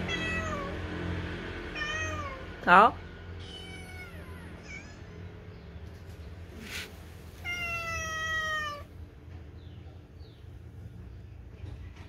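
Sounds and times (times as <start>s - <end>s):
cat meowing: 0.0s - 0.8s, 1.8s - 2.4s, 3.4s - 5.0s, 7.4s - 8.9s.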